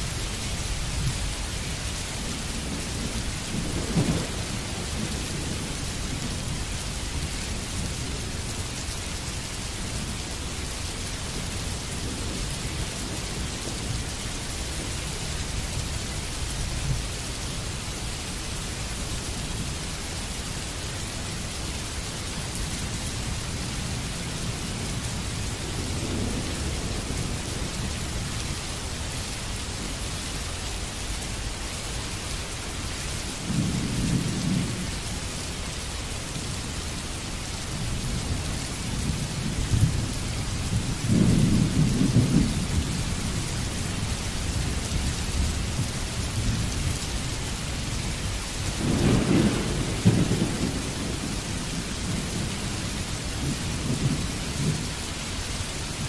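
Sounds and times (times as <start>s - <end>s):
rain hissing: 0.0s - 56.0s
thunder rumbling: 0.9s - 8.6s, 37.8s - 55.1s.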